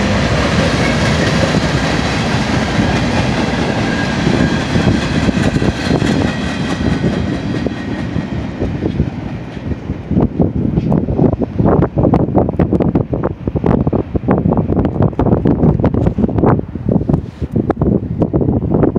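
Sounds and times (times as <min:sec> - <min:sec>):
train wheels rumbling on rails: 0:00.0 - 0:18.9
wheels clickety-clack: 0:00.1 - 0:10.0.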